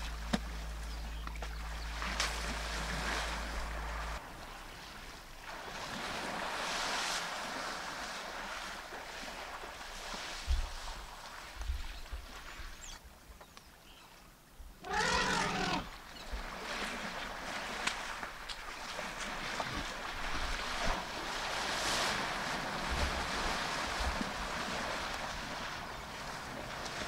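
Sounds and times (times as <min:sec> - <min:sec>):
elephant trumpeting: 0:14.8 - 0:15.9.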